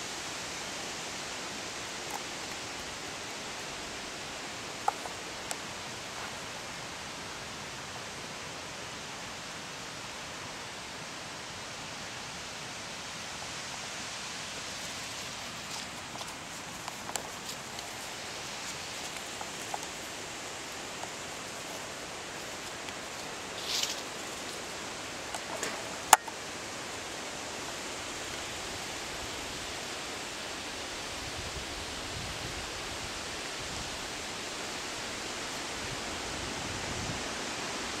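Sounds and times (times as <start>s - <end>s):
steady background hiss: 0.0s - 38.0s.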